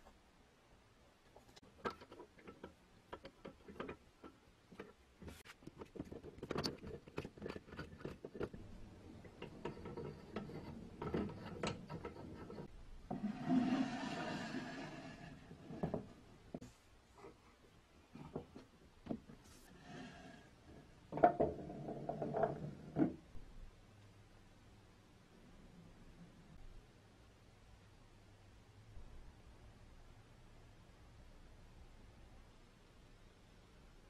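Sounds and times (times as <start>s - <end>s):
wood and metal clicks and knocks: 1.4s - 12.7s.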